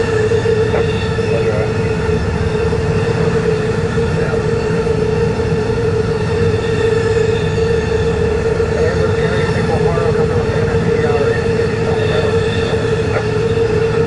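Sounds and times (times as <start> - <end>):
mid-pitched hum: 0.0 - 14.0.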